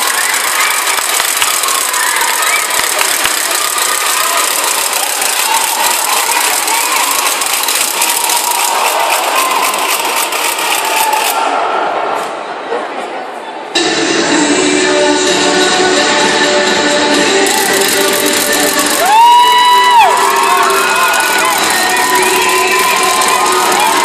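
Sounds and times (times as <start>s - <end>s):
crowd clapping: 0.0s - 11.4s, 17.4s - 24.0s
crowd shouting: 0.0s - 12.7s, 17.5s - 24.0s.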